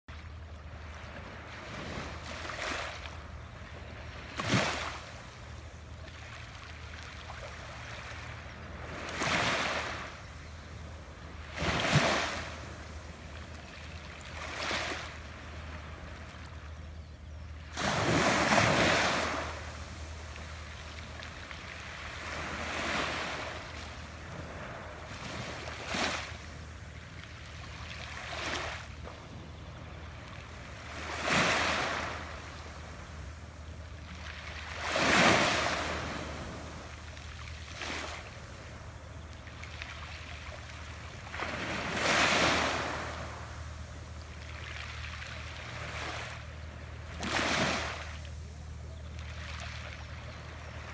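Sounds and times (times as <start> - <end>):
low hum: 42.8 - 47.2.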